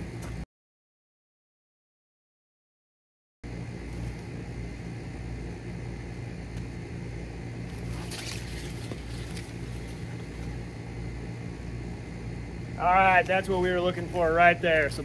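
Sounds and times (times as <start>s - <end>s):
steady low hum: 0.0s - 0.4s, 3.4s - 15.0s
rushing rustle through branches: 7.7s - 10.5s.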